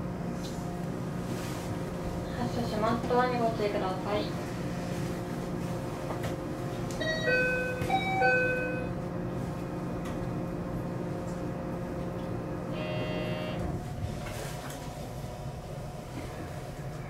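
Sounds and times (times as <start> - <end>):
train electrical hum: 0.0 - 17.0
electronic door chime melody: 7.0 - 8.9, 12.8 - 13.6
buzzing tone: 12.7 - 13.8.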